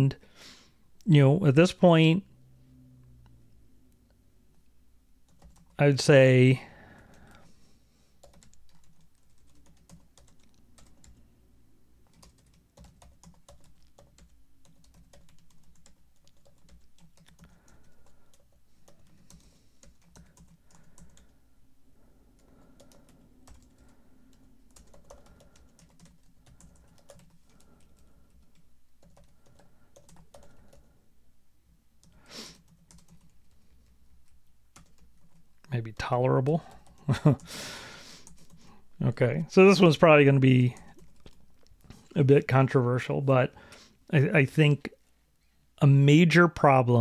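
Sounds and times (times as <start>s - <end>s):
keyboard typing: 5.3s - 5.8s, 8.2s - 11.2s, 12.0s - 21.4s, 22.4s - 30.9s, 32.0s - 35.5s, 40.8s - 41.8s.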